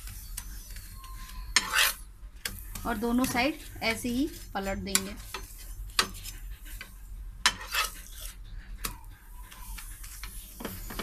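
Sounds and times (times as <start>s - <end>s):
metal spatula scraping pan: 0.0s - 8.9s
light sizzle: 0.0s - 11.0s.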